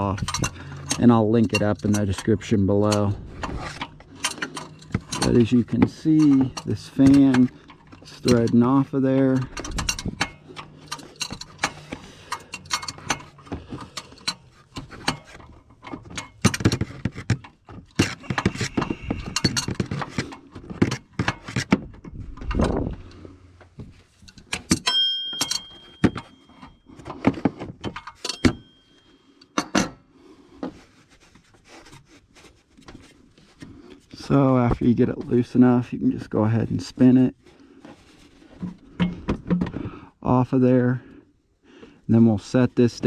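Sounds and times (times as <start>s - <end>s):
metal and plastic clicks and scrapes: 0.0s - 28.6s
ringing metal clink: 24.3s - 26.8s, 28.1s - 30.0s.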